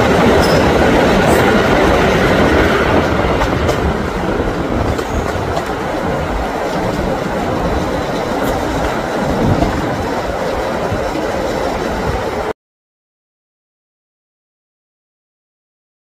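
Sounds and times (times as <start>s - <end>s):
train wheels rumbling on rail: 0.0s - 12.5s.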